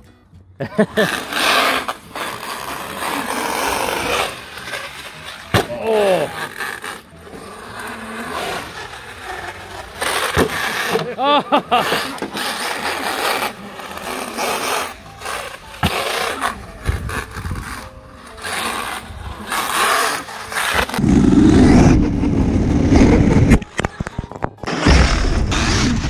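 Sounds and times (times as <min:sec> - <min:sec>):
tyres on rough concrete: 0:00.6 - 0:26.0
deep rumble: 0:21.0 - 0:23.8, 0:24.7 - 0:26.0.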